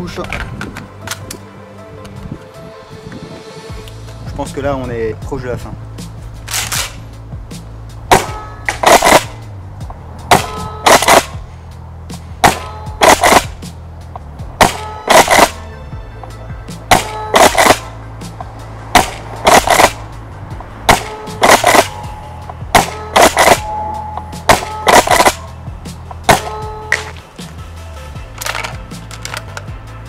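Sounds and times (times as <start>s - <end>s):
shotgun pump clack: 6.4s - 7.0s, 8.1s - 9.4s, 10.3s - 11.4s, 12.4s - 13.6s, 14.6s - 15.6s, 16.9s - 17.9s, 19.0s - 20.0s, 20.9s - 23.7s, 24.5s - 25.5s, 28.3s - 29.7s
airsoft shotgun shots: 8.1s - 9.4s, 10.3s - 11.4s, 12.4s - 13.6s, 14.6s - 15.6s, 16.9s - 17.9s, 18.9s - 20.0s, 20.9s - 22.1s, 22.7s - 23.7s, 24.5s - 25.5s, 26.3s - 27.2s.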